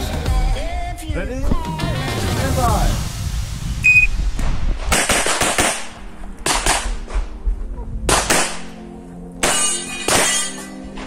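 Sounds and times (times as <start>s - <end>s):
shot timer beep: 3.8s - 4.1s
pistol shots: 4.9s - 7.0s, 8.1s - 8.8s.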